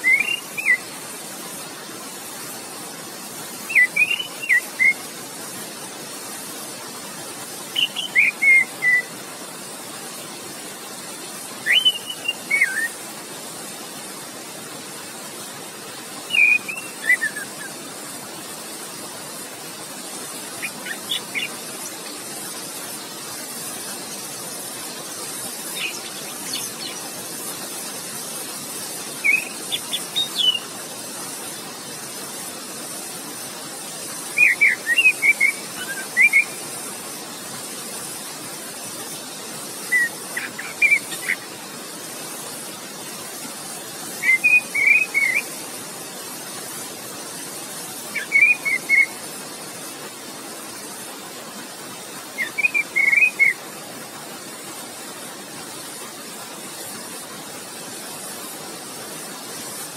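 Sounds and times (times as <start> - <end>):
thrush singing whistled notes: 0.0 - 1.7, 3.5 - 5.1, 7.5 - 9.2, 11.0 - 13.1, 16.0 - 17.8, 19.8 - 33.0, 34.0 - 37.3, 38.9 - 42.5, 43.6 - 46.0, 47.9 - 49.9, 51.7 - 53.8
flowing water rushing: 0.0 - 59.9.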